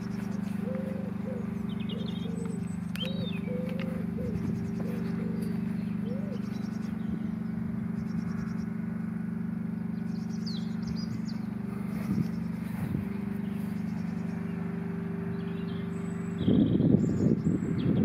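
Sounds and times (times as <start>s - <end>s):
engine idling: 0.0s - 18.0s
small birds chirping: 0.0s - 18.0s.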